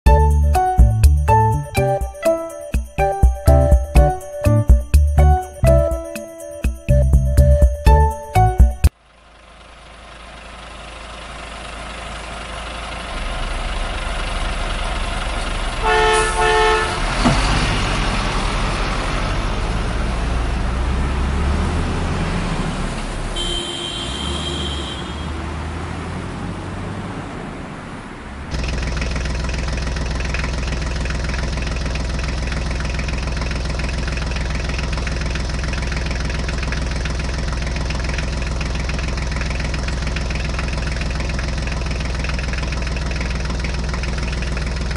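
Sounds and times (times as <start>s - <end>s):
truck engine running: 0.1s - 24.0s, 25.6s - 44.9s
truck horn honk: 15.8s - 17.4s, 23.3s - 25.5s.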